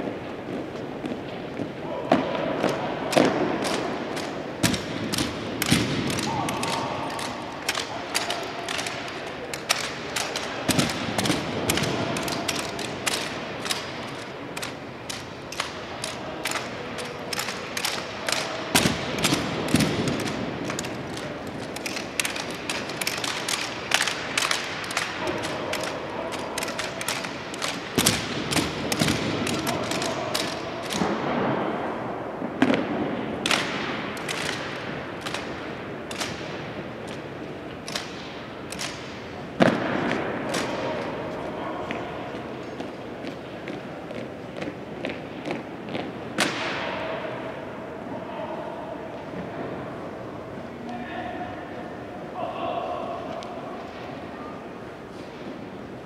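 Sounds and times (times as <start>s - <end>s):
rifles clacking and knocking: 2.6s - 31.4s, 33.4s - 44.3s.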